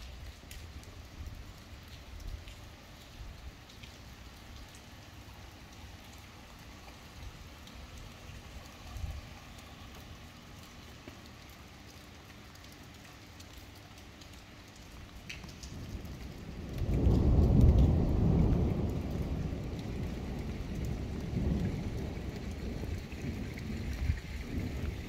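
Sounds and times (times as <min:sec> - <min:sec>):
steady rain: 0:00.0 - 0:25.0
thunder rumbling: 0:15.4 - 0:25.0.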